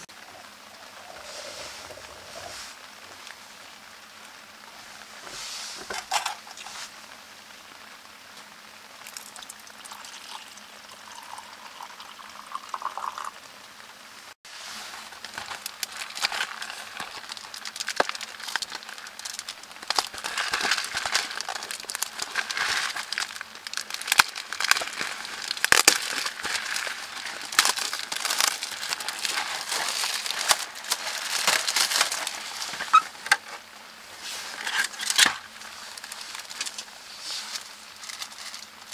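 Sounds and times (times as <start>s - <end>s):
plastic packaging crinkling: 0.8s - 3.3s, 14.8s - 38.9s.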